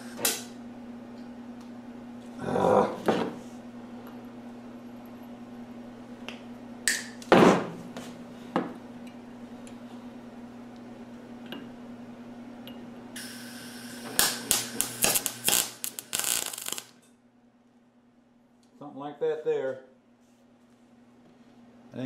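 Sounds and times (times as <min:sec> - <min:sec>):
welding arc crackling: 0:00.0 - 0:00.6, 0:13.2 - 0:17.0
steady low hum: 0:00.0 - 0:22.0
welder gas hiss: 0:13.2 - 0:16.9.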